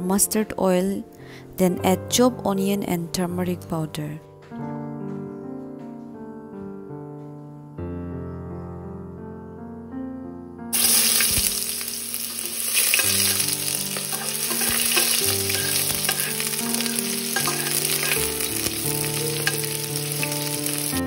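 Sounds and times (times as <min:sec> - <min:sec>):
soft piano music: 0:00.0 - 0:21.0
onion sizzling in hot oil: 0:10.8 - 0:21.0.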